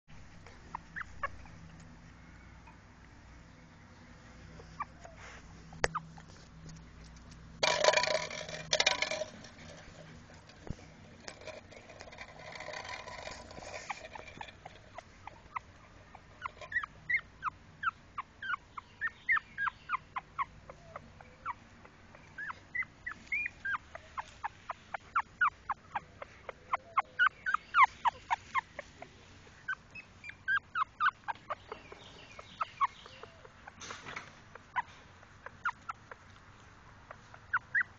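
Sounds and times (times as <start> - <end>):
puppies squeaking and crying: 0.2 - 2.9, 4.3 - 37.9
rustling: 4.1 - 16.8.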